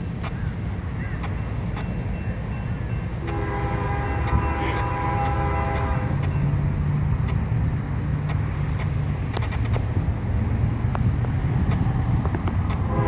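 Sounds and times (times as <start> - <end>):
low train rumble: 0.0 - 13.0
distant locomotive air horn: 3.2 - 6.2, 12.8 - 13.0.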